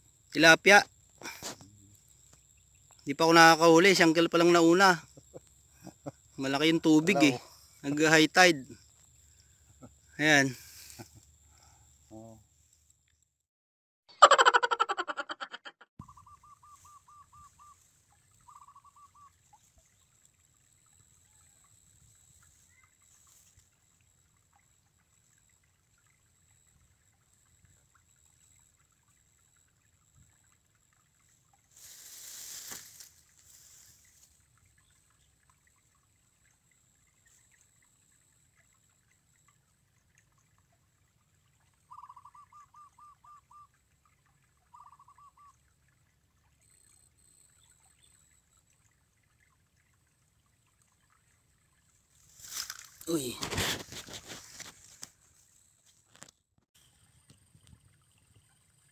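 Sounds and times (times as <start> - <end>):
faint rapid bird call: 16.0 - 19.4.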